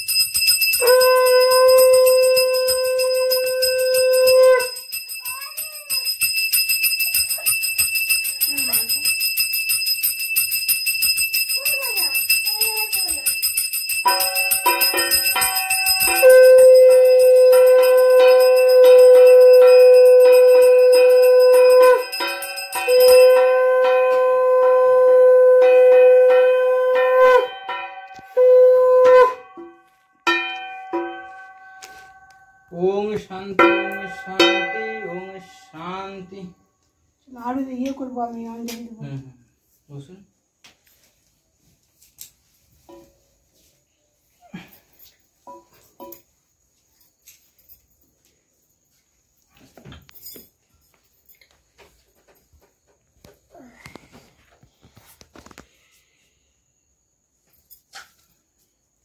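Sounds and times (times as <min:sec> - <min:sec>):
hand bell ringing: 0:00.0 - 0:24.8, 0:25.5 - 0:36.6
conch shell blowing: 0:00.8 - 0:04.8, 0:15.8 - 0:29.9.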